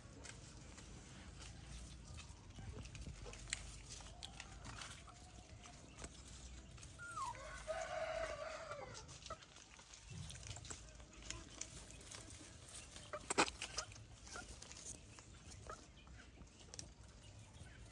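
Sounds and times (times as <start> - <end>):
rooster crowing: 7.2 - 9.0.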